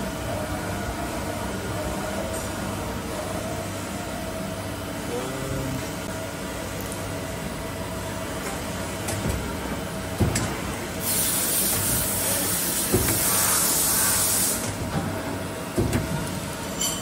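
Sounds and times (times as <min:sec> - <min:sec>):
loud hiss: 0:11.0 - 0:14.6.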